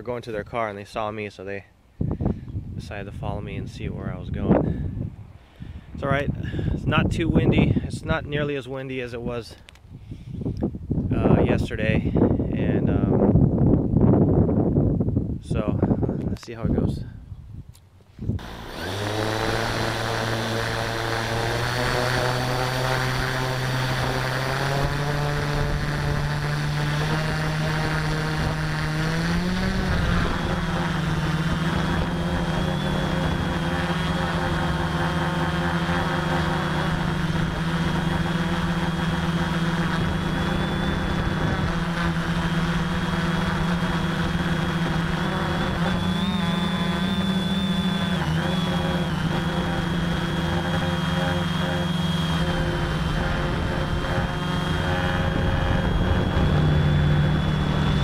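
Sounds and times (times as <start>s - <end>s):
quadcopter motors buzzing: 18.2s - 58.0s.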